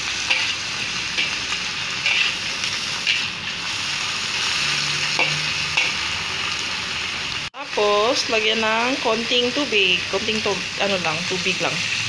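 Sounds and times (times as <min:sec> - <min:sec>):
food sizzling in a wok: 0:00.0 - 0:12.0
metal spatula scraping pan: 0:02.0 - 0:03.3.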